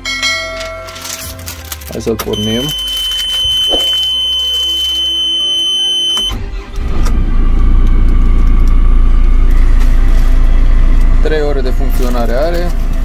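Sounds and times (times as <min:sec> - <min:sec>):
diesel engine cranking: 0:02.3 - 0:13.0
high-pitched warning tone: 0:02.4 - 0:06.4
diesel engine idling: 0:05.1 - 0:13.0.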